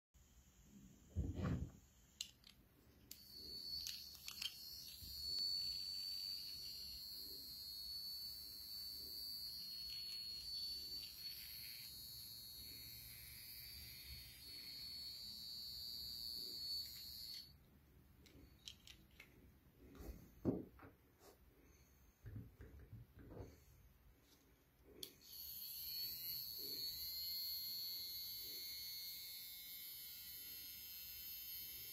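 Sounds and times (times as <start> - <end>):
toy car electric motor whining: 2.2 - 17.6, 25.0 - 31.9.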